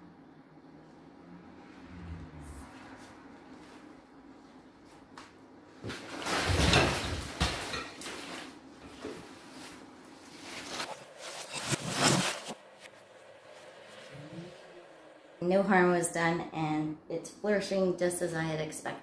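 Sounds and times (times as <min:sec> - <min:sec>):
leaf rustle: 0:09.4 - 0:14.7
plastic plant pots scraping: 0:10.4 - 0:12.6.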